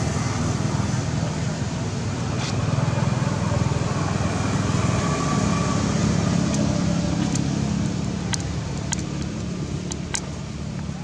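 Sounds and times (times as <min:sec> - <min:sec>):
vehicle engine running: 0:00.0 - 0:11.0
sharp clicks: 0:08.3 - 0:10.3.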